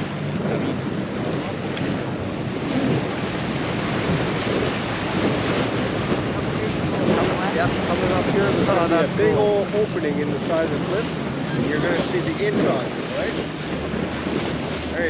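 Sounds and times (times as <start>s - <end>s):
boat motor humming: 0.0s - 15.0s
water rushing against hull: 0.0s - 15.0s
wind buffeting microphone: 0.0s - 15.0s.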